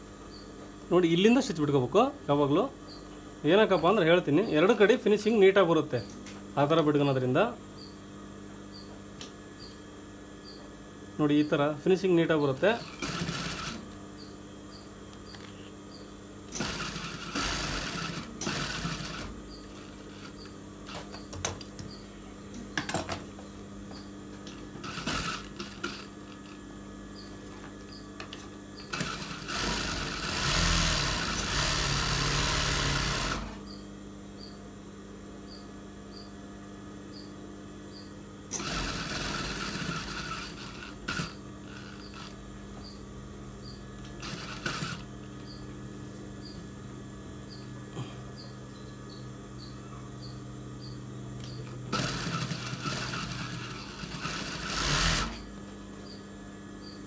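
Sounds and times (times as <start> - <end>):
motor humming: 11.2 - 22.2, 23.9 - 34.6, 37.1 - 57.0
sewing machine stitching: 12.5 - 13.8, 16.5 - 20.4, 24.8 - 26.1, 28.8 - 33.6, 38.5 - 42.4, 44.2 - 45.1, 51.9 - 55.5.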